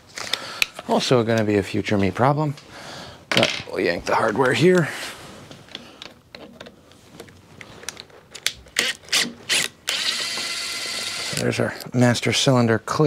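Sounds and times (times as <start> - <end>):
cordless driver motor running: 8.8 - 11.4.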